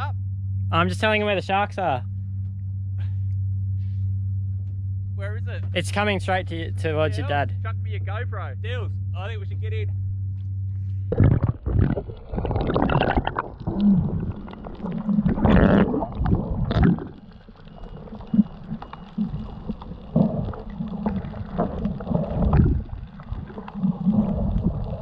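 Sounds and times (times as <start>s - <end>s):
muffled underwater gurgling: 11.0s - 25.0s
underwater churning and bubbles: 11.1s - 25.0s.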